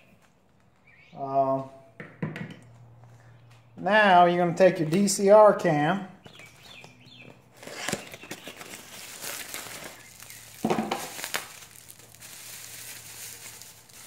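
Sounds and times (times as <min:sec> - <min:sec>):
plastic wrapping crinkling: 0:07.5 - 0:14.0.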